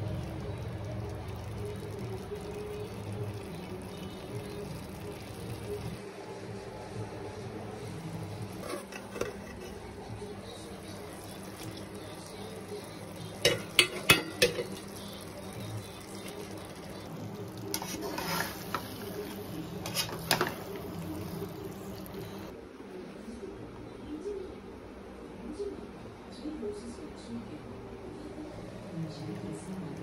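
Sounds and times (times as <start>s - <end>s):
utensil scraping metal pot: 8.3s - 10.0s, 10.8s - 22.5s.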